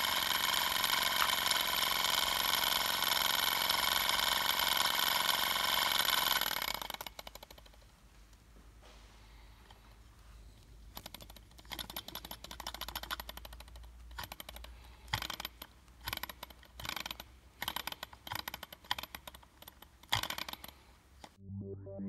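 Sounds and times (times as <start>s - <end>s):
model engine clattering clicks: 10.9s - 21.4s.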